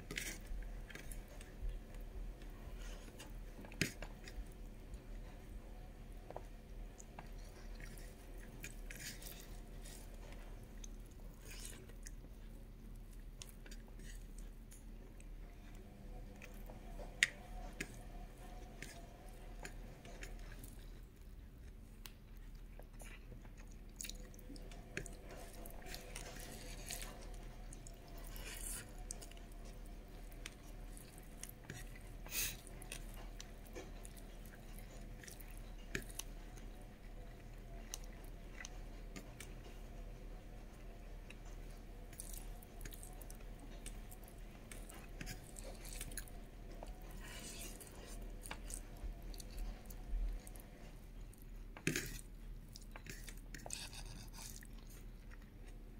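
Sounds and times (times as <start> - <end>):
person chewing: 7.0 - 15.3, 19.6 - 39.4, 41.4 - 55.9
rice squishing by hand: 24.6 - 39.7, 41.4 - 55.5.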